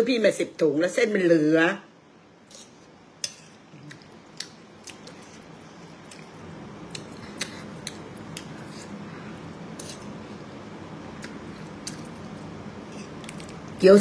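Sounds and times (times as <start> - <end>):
person chewing noodles: 3.7 - 10.2, 11.1 - 12.3.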